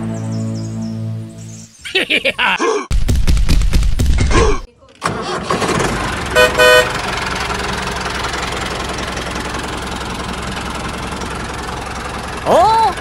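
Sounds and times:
tractor engine running: 0:05.0 - 0:13.0
loud horn-like honk: 0:06.4 - 0:07.0.

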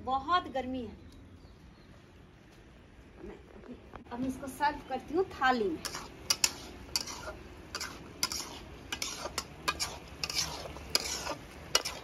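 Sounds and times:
ladle clinking and scraping pot: 0:05.8 - 0:12.0.

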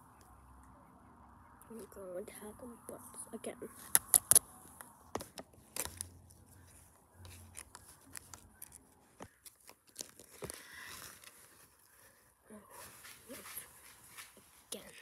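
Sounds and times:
plastic toys clicking on brick: 0:03.9 - 0:04.4.

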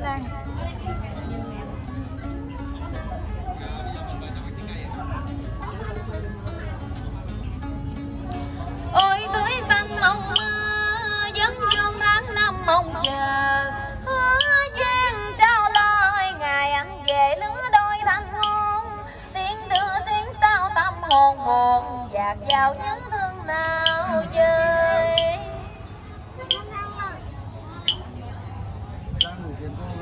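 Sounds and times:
plucked guitar: 0:00.0 - 0:30.0
woman singing: 0:08.9 - 0:25.8.

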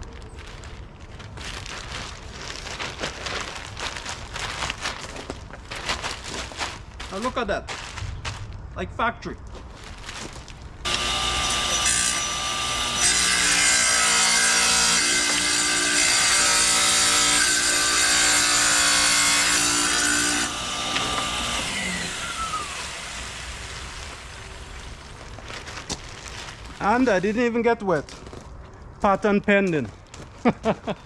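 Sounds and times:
saw motor spinning down: 0:10.9 - 0:13.6, 0:20.2 - 0:24.4
wet tile saw cutting tile: 0:10.9 - 0:24.2.

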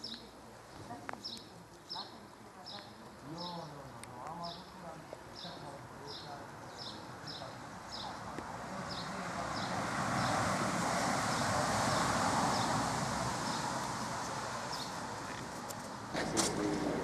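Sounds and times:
broad rushing noise: 0:07.8 - 0:17.0.

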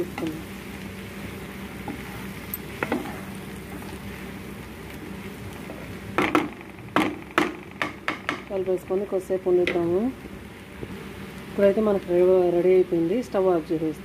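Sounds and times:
vegetables sizzling in a pan: 0:00.0 - 0:14.0
wooden spatula scraping pan: 0:01.8 - 0:03.9
spatula knocking against pan: 0:06.2 - 0:08.5.

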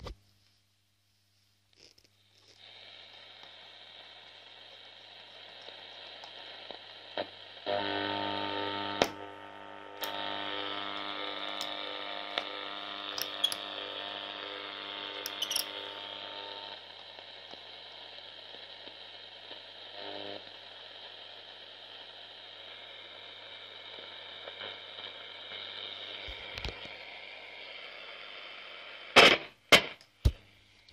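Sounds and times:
crackles and clicks: 0:01.6 - 0:19.8, 0:23.9 - 0:27.1, 0:29.2 - 0:30.9
radio static hiss: 0:01.7 - 0:30.9.

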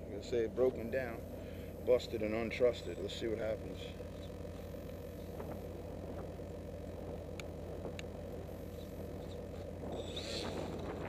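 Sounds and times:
wind buffeting microphone: 0:09.8 - 0:11.0.

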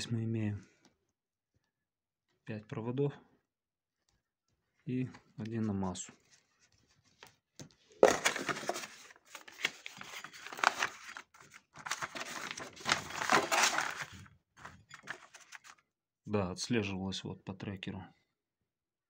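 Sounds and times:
paper rustling and crinkling: 0:06.1 - 0:15.8.

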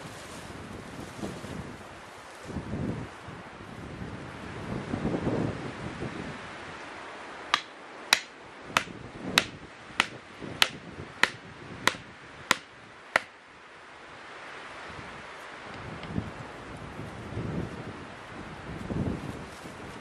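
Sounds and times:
wind: 0:00.0 - 0:20.0
sharp knocks: 0:07.5 - 0:13.3.

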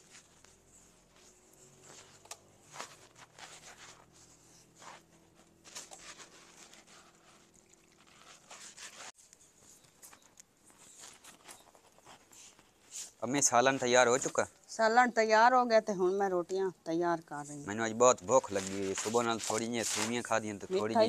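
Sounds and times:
dough kneaded by hand: 0:00.0 - 0:14.4, 0:18.2 - 0:21.0.

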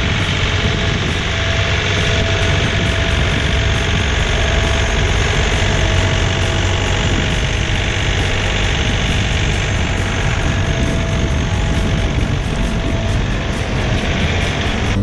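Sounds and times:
thin steady whine: 0:00.0 - 0:15.0
tractor diesel engine running: 0:00.0 - 0:15.0.

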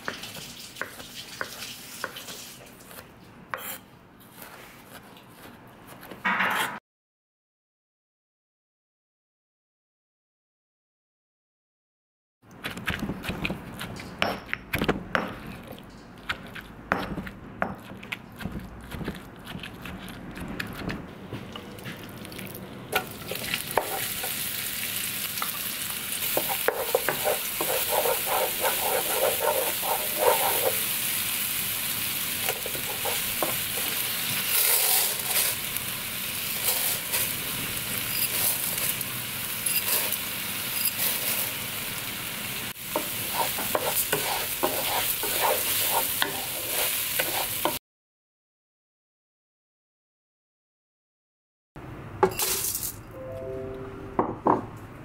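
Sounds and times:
pestle pounding in stone mortar: 0:12.6 - 0:21.0
paste sizzling in hot oil: 0:23.0 - 0:47.8
wooden spatula stirring: 0:26.2 - 0:30.9, 0:32.5 - 0:35.6, 0:42.9 - 0:47.8.

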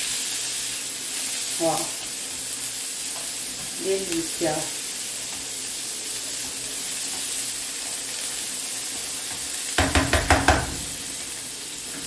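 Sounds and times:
food sizzling in a frying pan: 0:00.0 - 0:12.0
spatula knocking on pan rim: 0:09.8 - 0:10.8.

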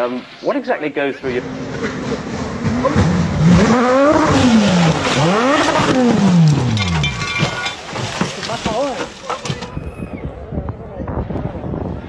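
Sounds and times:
rally car engine revving: 0:01.3 - 0:08.3.

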